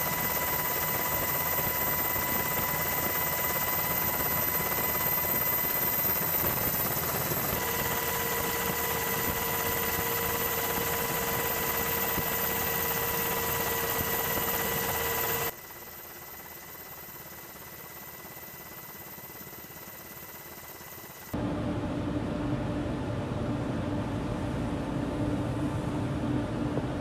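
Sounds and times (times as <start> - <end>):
helicopter engine and rotor: 0.0 - 27.0
high whining tones: 0.7 - 15.5.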